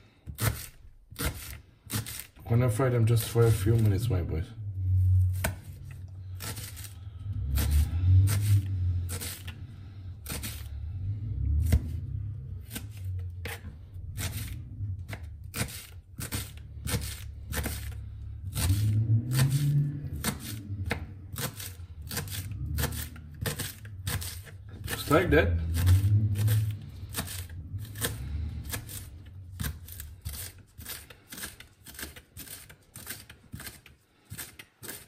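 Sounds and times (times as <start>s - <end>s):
knife chopping on cutting board: 0.3s - 2.3s, 15.1s - 19.6s
low hum: 3.4s - 30.3s.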